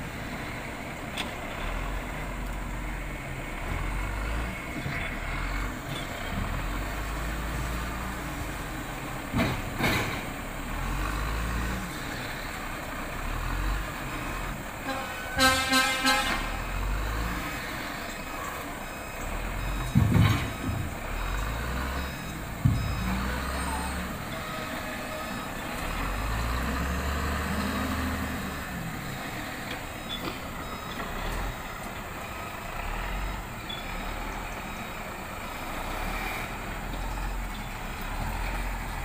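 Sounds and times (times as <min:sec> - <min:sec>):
diesel engine running: 0:00.0 - 0:39.0
short beeps: 0:21.9 - 0:25.6, 0:33.1 - 0:34.1
heavy thumps: 0:22.5 - 0:23.1.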